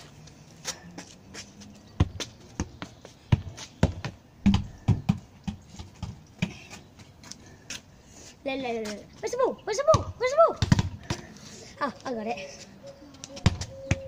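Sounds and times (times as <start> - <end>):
footsteps on paving: 0.0 - 7.9, 8.5 - 10.1
football being kicked and bouncing: 2.0 - 7.0, 9.8 - 11.3, 13.4 - 14.0.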